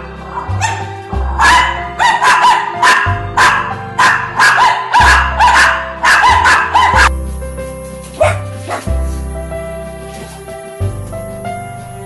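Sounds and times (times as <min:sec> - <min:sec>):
music with low bass: 0:00.0 - 0:12.0
small dog barking rapidly: 0:01.4 - 0:07.1, 0:08.2 - 0:08.9.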